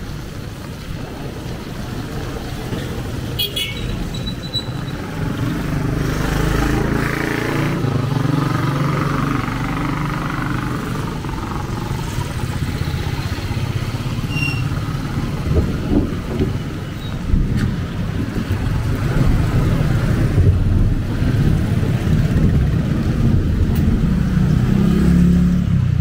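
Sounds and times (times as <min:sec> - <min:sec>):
heavy rain hiss: 0:00.0 - 0:25.5.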